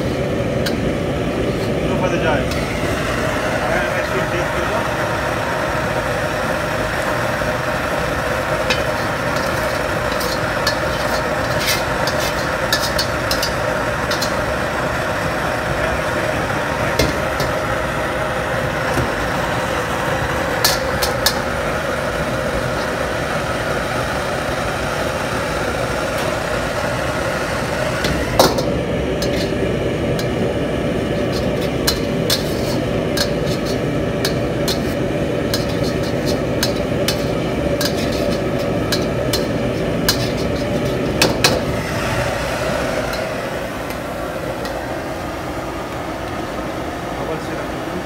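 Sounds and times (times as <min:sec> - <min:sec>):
metal ladle scraping a wok: 0:00.0 - 0:00.8, 0:01.4 - 0:01.9, 0:08.6 - 0:14.6, 0:20.6 - 0:21.5, 0:28.1 - 0:29.6, 0:31.1 - 0:42.4
kitchen equipment roar: 0:00.0 - 0:48.0
loud metal clank: 0:28.0 - 0:29.5.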